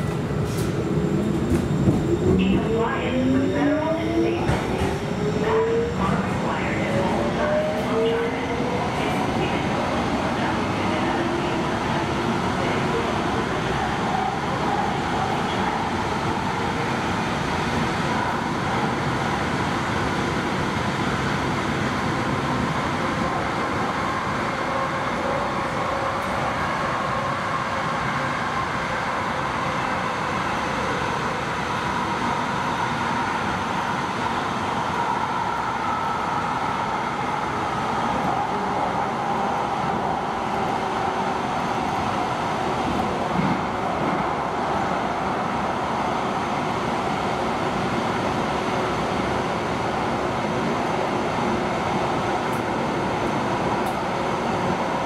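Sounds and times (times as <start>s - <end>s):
train rumble and rail noise: 0.0s - 55.0s.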